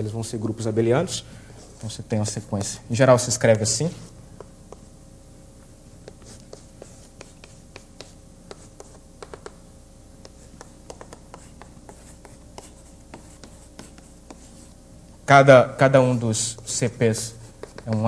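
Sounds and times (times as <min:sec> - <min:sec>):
faint steady hum: 0:00.0 - 0:18.0
pen tapping and scratching: 0:06.0 - 0:09.6, 0:10.2 - 0:14.5, 0:17.5 - 0:18.0.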